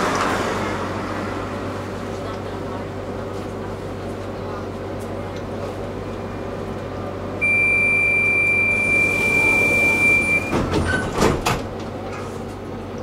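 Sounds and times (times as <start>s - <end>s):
tram interior hum: 0.0s - 13.0s
door warning beep: 7.4s - 10.7s.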